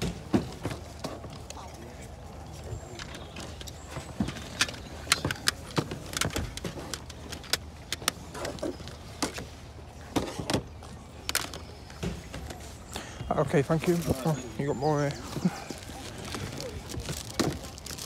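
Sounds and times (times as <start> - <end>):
small hard items clinking: 13.6 - 18.0.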